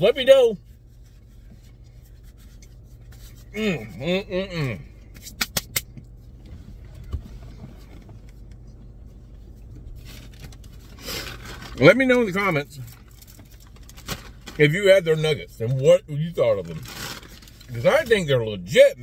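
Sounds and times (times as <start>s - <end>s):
car interior hum: 0.0s - 19.0s
man's muffled vocal sound: 3.5s - 4.9s.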